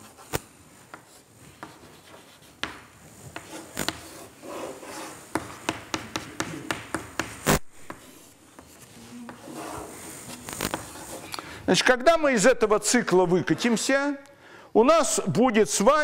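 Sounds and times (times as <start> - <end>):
chalk scratching on blackboard: 0.0 - 11.3
chalk tapping: 0.0 - 11.3.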